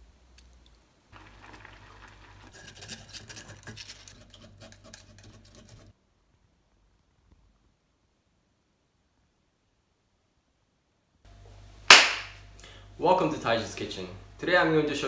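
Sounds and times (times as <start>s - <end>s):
spoon scraping mesh strainer: 1.2s - 5.9s.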